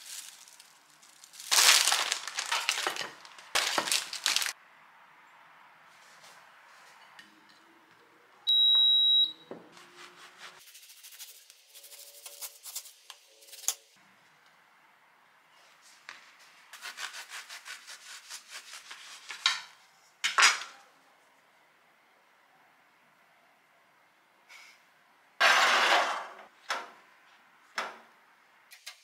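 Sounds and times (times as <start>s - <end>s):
short electronic beep: 8.5s - 9.5s
bread knife sawing bagels: 16.8s - 19.4s.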